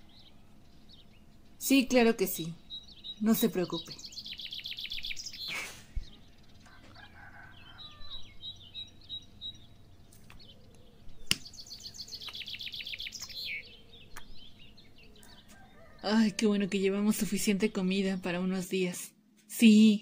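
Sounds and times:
small birds chirping: 0.0 - 18.9
sharp click: 11.3 - 11.5.

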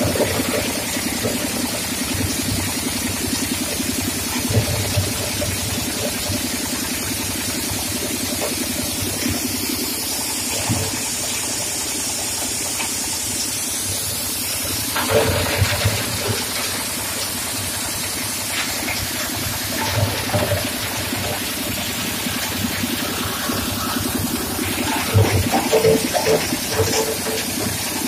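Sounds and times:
coal crusher rushing rumble: 0.0 - 28.0
knocks and clatters: 23.4 - 28.0.

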